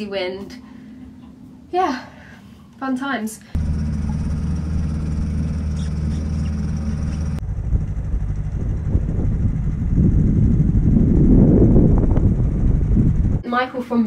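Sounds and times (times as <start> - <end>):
outboard motor running: 3.6 - 13.4
wind rumble on microphone: 5.0 - 13.4.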